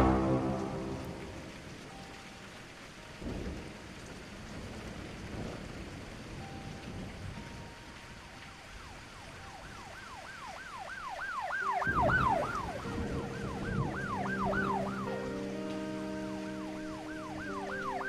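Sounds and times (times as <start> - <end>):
low vehicle rumble: 0.0 - 1.6
low horn-like tones: 0.0 - 1.7
police siren yelping: 8.8 - 18.0.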